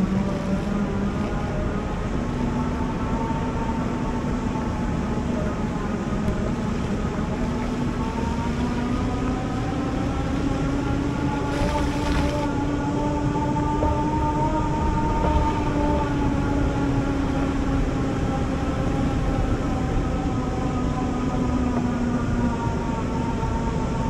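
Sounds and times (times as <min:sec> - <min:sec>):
low rumble: 0:00.0 - 0:23.6.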